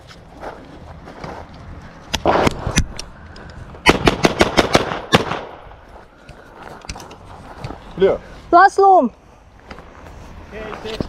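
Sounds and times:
rifle gunshots: 3.8s - 5.6s.

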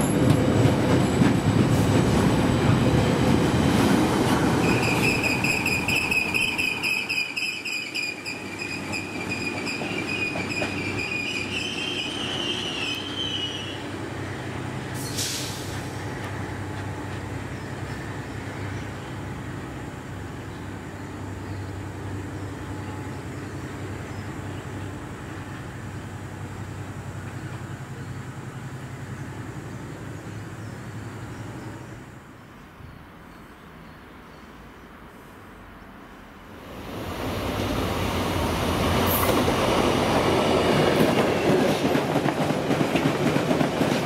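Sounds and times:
low rumble of train: 0.0s - 44.0s
train wheels squealing: 4.6s - 13.9s
brief hiss: 15.0s - 16.0s.

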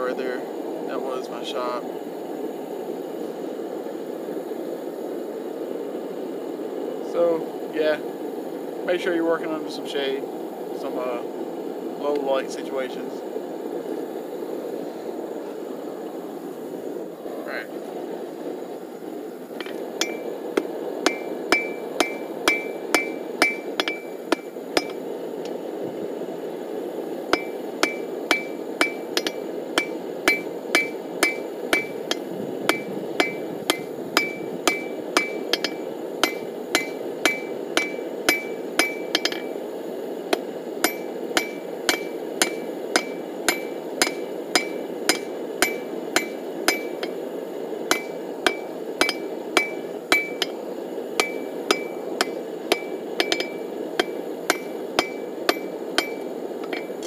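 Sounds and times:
steady rushing noise: 0.0s - 57.0s
hammer striking metal on anvil: 19.6s - 25.0s, 27.3s - 39.6s, 40.3s - 47.2s, 47.9s - 50.6s, 51.2s - 57.0s.

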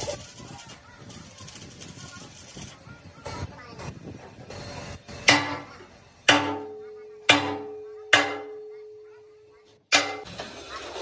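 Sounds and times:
metal strikes on steel bucket: 5.2s - 8.7s, 9.9s - 10.4s.

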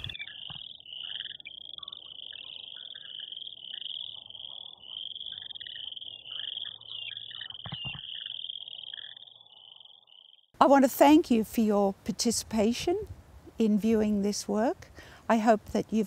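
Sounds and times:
frogs trilling: 0.0s - 10.6s.

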